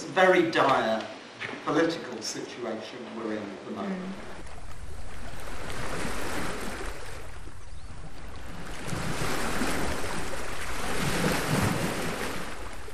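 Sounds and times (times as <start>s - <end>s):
sea surf washing onto beach: 4.2s - 12.9s.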